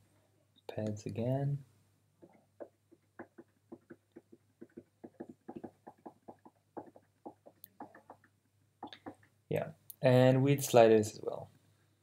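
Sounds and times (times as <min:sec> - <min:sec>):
fingers tapping rubber pads: 0:02.2 - 0:09.3.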